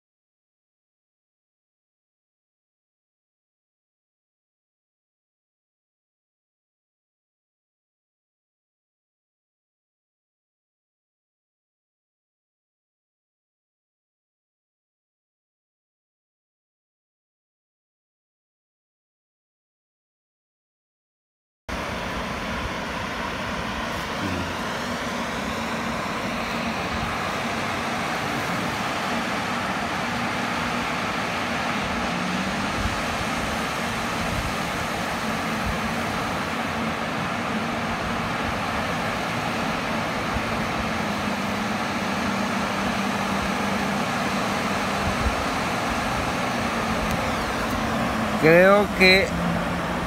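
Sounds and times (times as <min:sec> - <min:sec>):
waves breaking on shore: 0:21.7 - 0:50.0.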